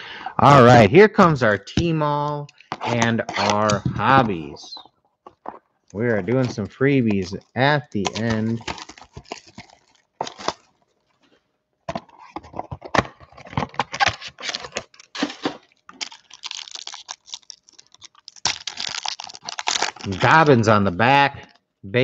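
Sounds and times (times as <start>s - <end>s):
plastic wrapping crinkling: 5.3s - 11.3s, 12.2s - 20.7s.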